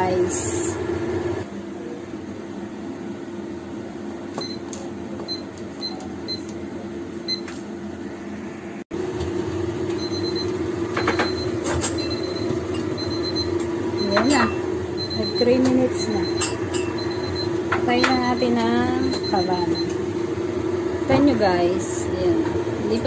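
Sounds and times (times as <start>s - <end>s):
steady hum: 0.0s - 23.0s
kitchen timer beeps: 4.4s - 6.6s, 9.9s - 20.0s.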